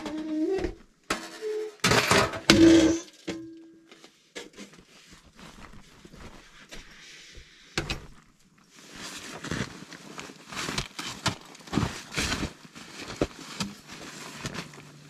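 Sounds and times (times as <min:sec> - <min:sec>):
metal stovepipe scraping and clanking: 0:00.0 - 0:03.7
rustling as pipe is handled: 0:02.7 - 0:15.0.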